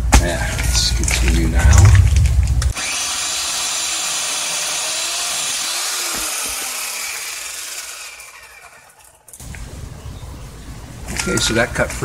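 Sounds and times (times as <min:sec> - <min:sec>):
low thuds: 0:00.0 - 0:02.8
electric chainsaw cutting wood: 0:02.7 - 0:09.3.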